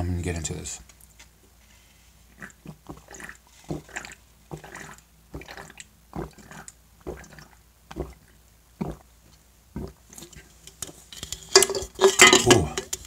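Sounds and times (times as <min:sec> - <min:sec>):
person gulping a drink: 0:02.3 - 0:10.6, 0:11.7 - 0:13.0.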